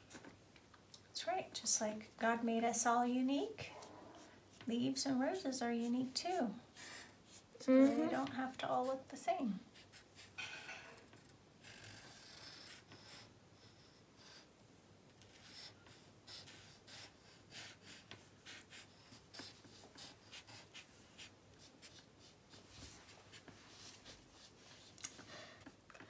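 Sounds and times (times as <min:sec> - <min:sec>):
markers scratching on paper: 0:03.8 - 0:09.1, 0:09.7 - 0:10.4, 0:11.6 - 0:14.5, 0:15.2 - 0:25.2.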